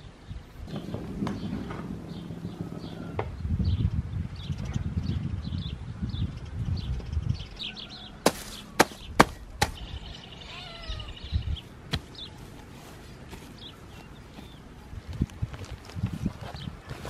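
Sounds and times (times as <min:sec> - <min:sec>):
small birds chirping: 0:00.0 - 0:17.0
low rumble: 0:00.6 - 0:06.9
hand tool striking the ground: 0:08.3 - 0:09.8.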